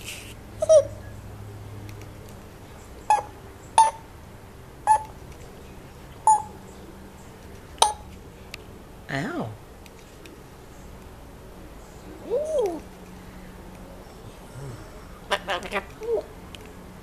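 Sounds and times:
parrot beep-like calls: 3.1s - 4.0s, 4.9s - 5.1s, 6.3s - 6.6s, 7.8s - 8.0s.

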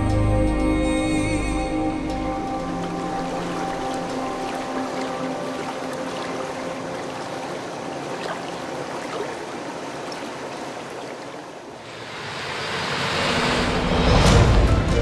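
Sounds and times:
river water rippling past rocks: 2.0s - 13.5s.

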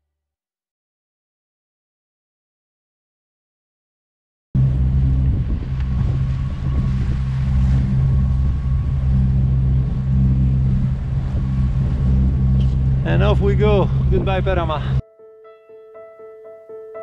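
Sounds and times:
boat engine running: 4.6s - 15.0s
water along the hull: 4.6s - 15.0s.

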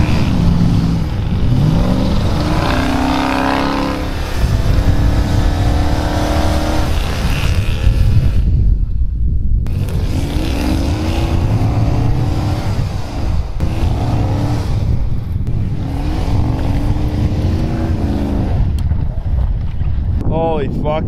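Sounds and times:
truck engine revving: 0.0s - 8.5s, 9.7s - 19.4s.

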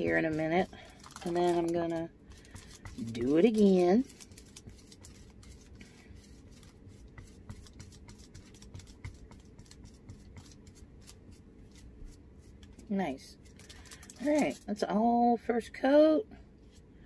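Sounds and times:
paintbrush scratching and dabbing: 0.0s - 13.6s.

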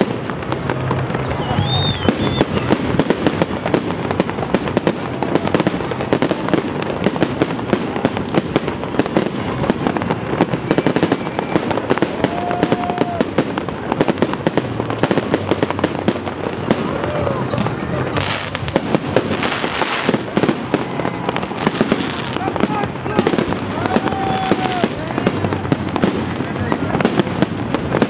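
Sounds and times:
fireworks bangs and crackles: 0.0s - 28.0s.

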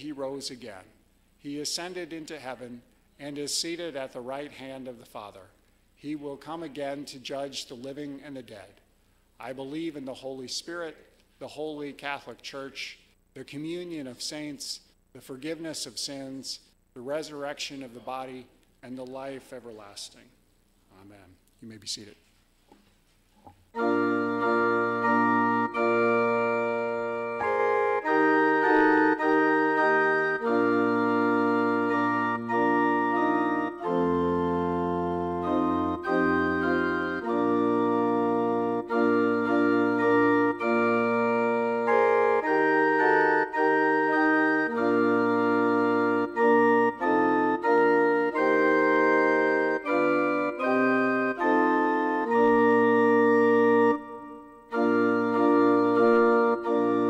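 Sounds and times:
organ playing sustained chords: 0.0s - 5.4s, 23.7s - 57.0s.

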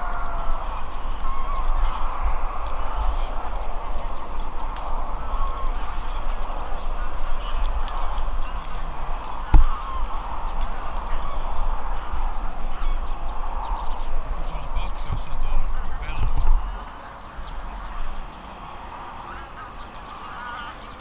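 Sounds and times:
flock of geese honking: 0.0s - 21.0s
wind rumble on microphone: 0.0s - 21.0s.

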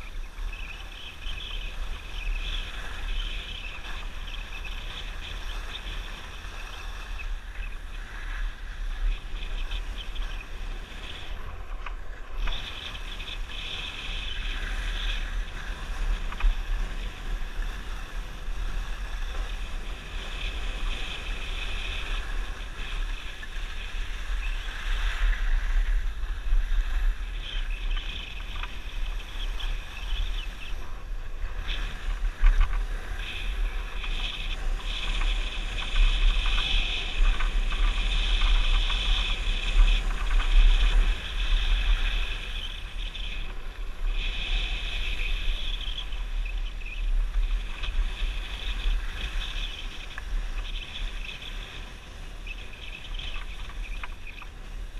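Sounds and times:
wind buffeting microphone: 0.0s - 54.9s
skis hissing on packed snow: 12.6s - 30.8s, 31.5s - 54.9s.

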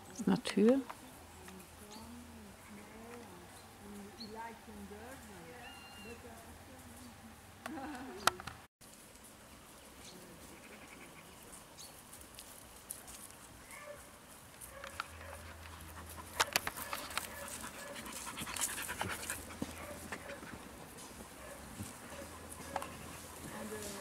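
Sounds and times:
clicks and rustles: 14.5s - 24.0s
dogs panting: 14.6s - 24.0s.

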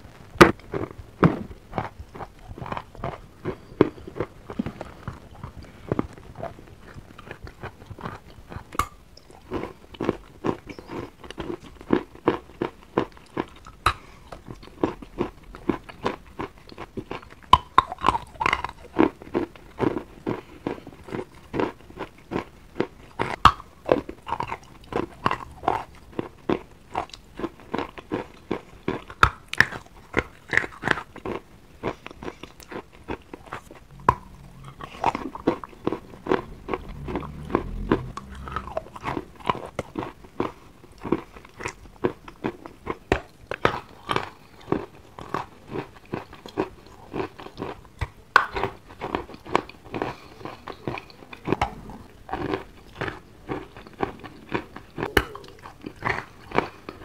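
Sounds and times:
chewing wet chalk crunches: 0.4s - 57.0s
low rumble: 33.4s - 40.0s, 51.5s - 52.3s.

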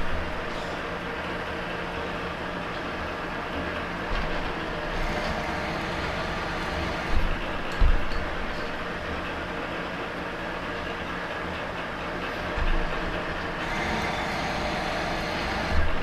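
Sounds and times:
metal lathe running: 0.0s - 16.0s
low thumps: 6.8s - 8.5s.

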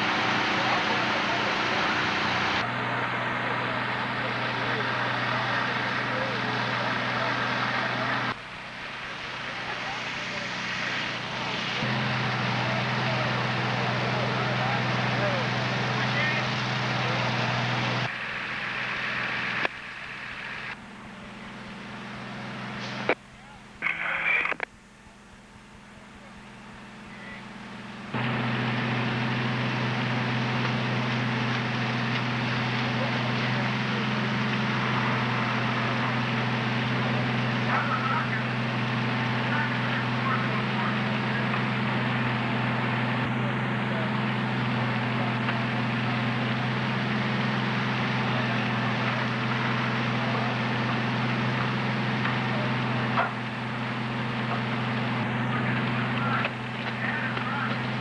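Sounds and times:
fire engine running: 0.0s - 58.0s
constant hiss: 12.6s - 28.2s.

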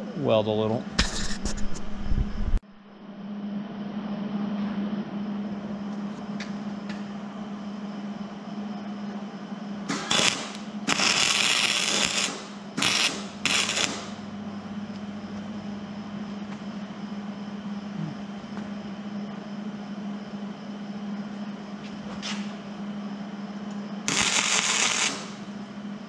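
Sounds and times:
steady low hum: 0.0s - 26.0s
welding arc crackling: 9.9s - 14.3s, 24.1s - 25.6s.

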